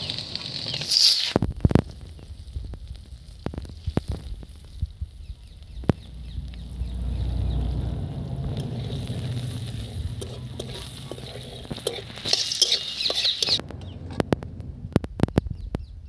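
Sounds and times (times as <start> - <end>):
onions frying in oil: 0.0 - 14.0
high-pitched hiss: 0.8 - 1.4
metal spatula scraping pan: 8.6 - 14.2.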